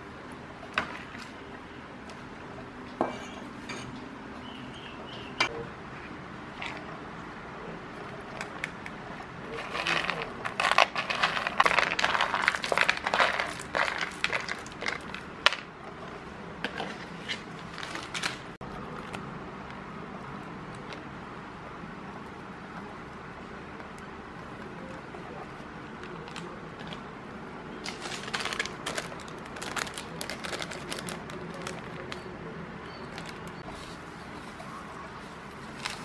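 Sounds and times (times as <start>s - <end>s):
peanuts clattering into plastic bowl: 9.6s - 15.7s.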